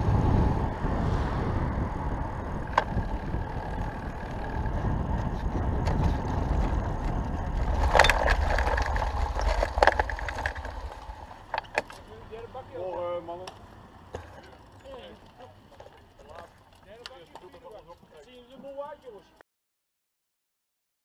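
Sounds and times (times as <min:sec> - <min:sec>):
wind buffeting microphone: 0:00.0 - 0:11.8
road rumble: 0:00.0 - 0:19.4
bike rattling on cobbles: 0:01.9 - 0:19.4.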